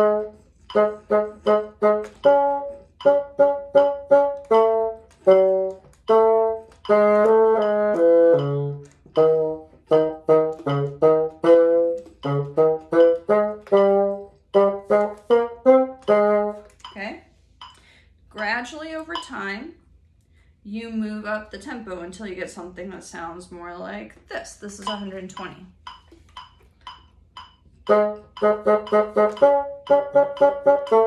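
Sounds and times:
bassoon playing short notes: 0.0 - 17.2, 27.8 - 31.0
metronome clicking: 0.0 - 18.0, 18.9 - 19.5, 24.6 - 31.0.

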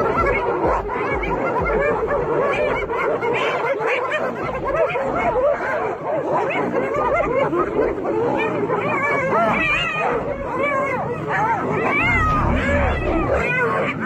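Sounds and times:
hyenas yelping and giggling: 0.0 - 14.0.

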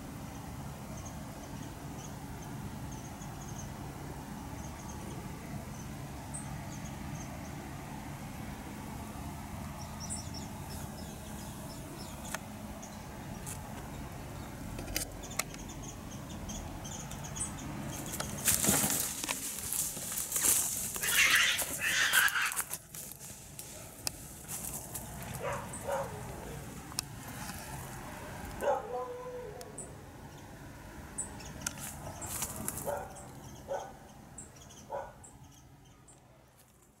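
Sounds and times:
rustling of dry leaves: 17.2 - 29.0, 31.7 - 33.3
cat calling: 21.0 - 22.7.

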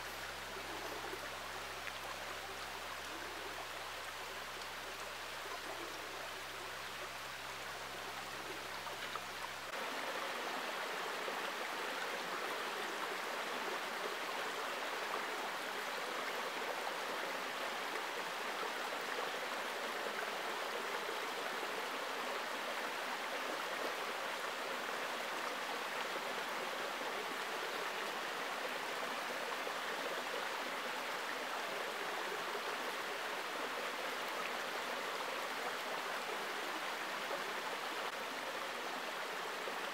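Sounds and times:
creek babbling over stones: 0.0 - 39.9.

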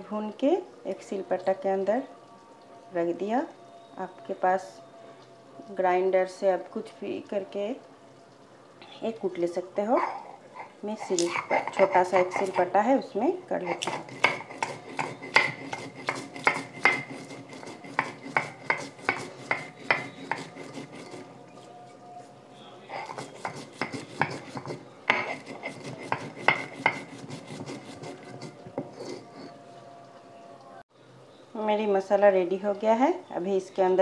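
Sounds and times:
stone roller rasping scrapes: 10.6 - 12.8, 13.5 - 21.8, 22.9 - 29.6.

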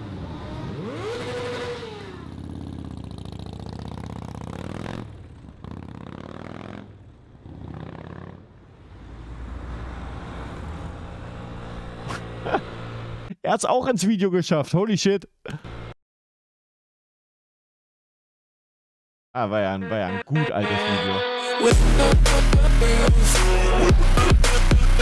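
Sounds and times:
motorcycle engines accelerating: 0.0 - 13.3, 15.5 - 15.9.

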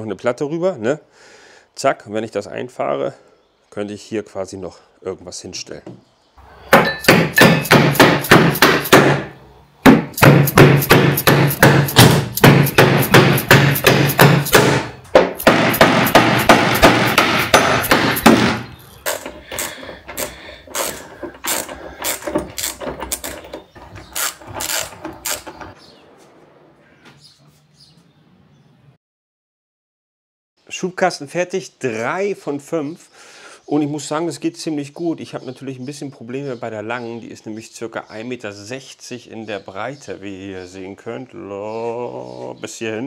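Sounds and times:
hand hammer striking: 6.7 - 25.5.

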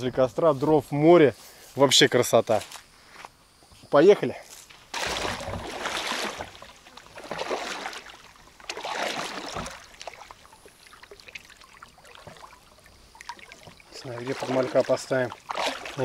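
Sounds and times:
small water splashes: 4.9 - 16.0
water sloshing and splashing: 4.9 - 16.0.

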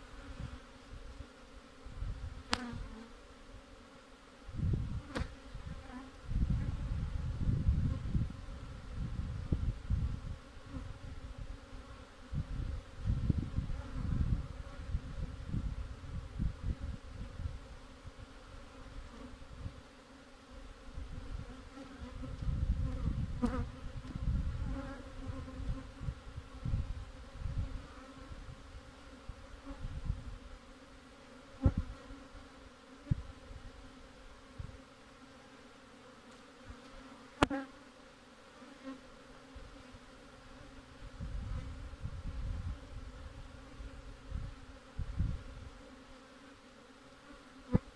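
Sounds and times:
honeybees buzzing: 0.0 - 47.9.

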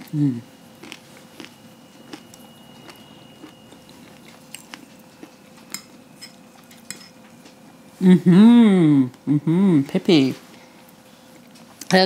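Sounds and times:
person chewing: 0.8 - 7.1.

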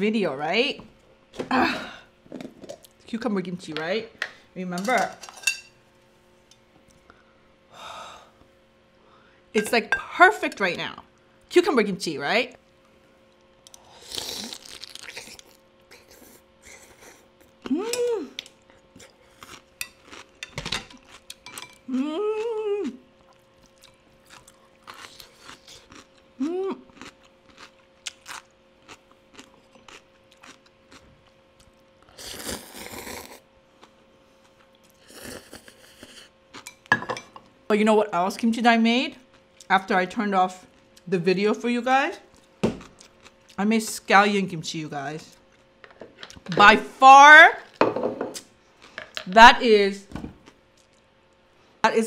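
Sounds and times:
crunching and chewing: 12.6 - 17.7, 18.4 - 21.9, 23.2 - 36.9, 42.3 - 43.6, 50.4 - 51.4
person humming mm: 15.9 - 18.4, 21.9 - 23.0, 26.4 - 26.9
slurping noodles: 32.1 - 33.4.

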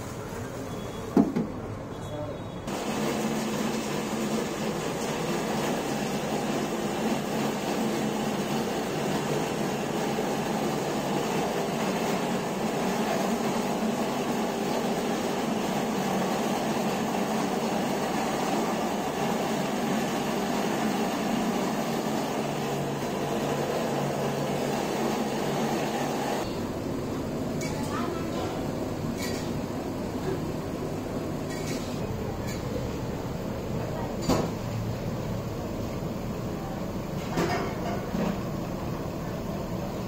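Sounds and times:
steady mechanical hum: 0.0 - 40.0.

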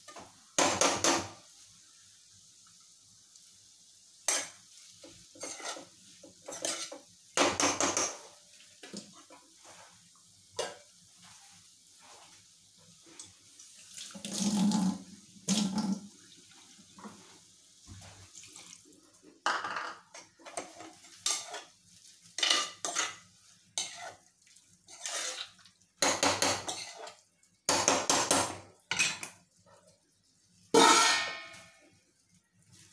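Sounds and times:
ladle scraping in a pot: 5.3 - 7.0, 20.4 - 21.7, 22.4 - 24.2, 24.9 - 27.2
metal lid clanging on pot: 30.8 - 31.6
spoons and bowls clinking: 30.8 - 31.8.

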